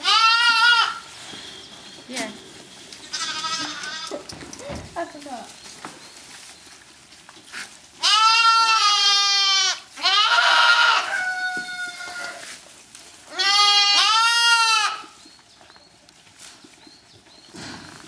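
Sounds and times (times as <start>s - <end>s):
goat kids bleating: 0.0s - 1.1s, 3.0s - 4.9s, 8.0s - 12.6s, 13.2s - 15.2s.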